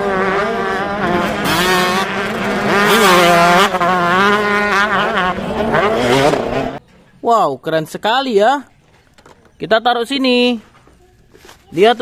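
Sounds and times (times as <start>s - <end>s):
dirt bike engines revving: 0.0s - 6.8s.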